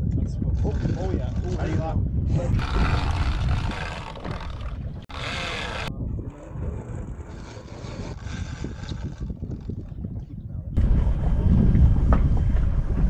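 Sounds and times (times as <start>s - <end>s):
wind buffeting microphone: 0.0s - 13.0s
muffled voices: 5.2s - 8.7s.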